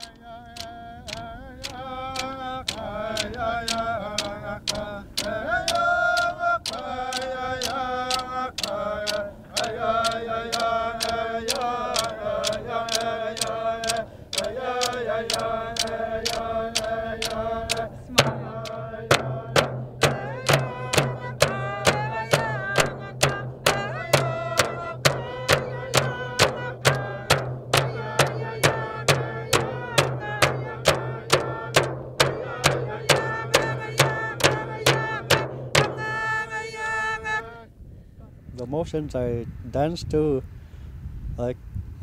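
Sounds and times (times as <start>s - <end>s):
frame drums struck with sticks: 0.0s - 36.4s
group chanting in unison: 0.0s - 37.7s.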